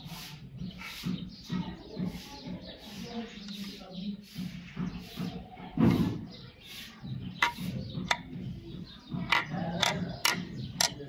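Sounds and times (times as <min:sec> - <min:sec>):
small metal parts clicking: 0:09.3 - 0:11.0.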